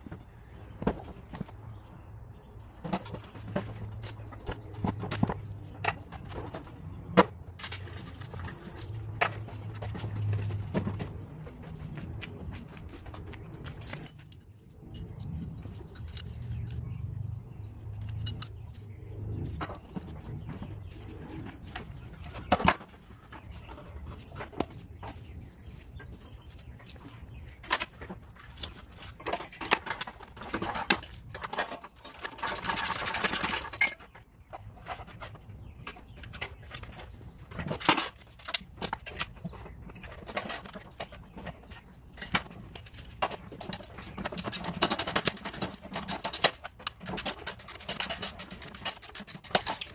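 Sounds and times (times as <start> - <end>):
metal parts clinking: 29.0 - 34.1.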